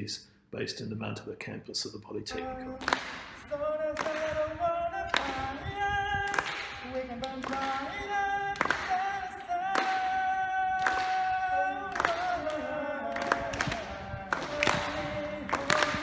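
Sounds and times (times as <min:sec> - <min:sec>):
young man singing: 0:02.3 - 0:16.0.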